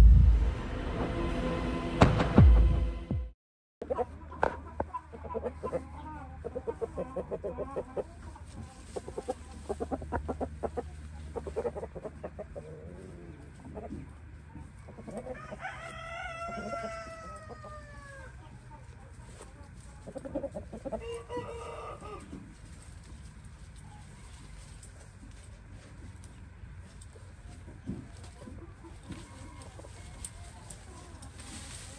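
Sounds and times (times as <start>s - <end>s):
rapid clucking: 3.8s - 15.8s
rooster crowing: 15.2s - 18.4s, 21.0s - 22.4s.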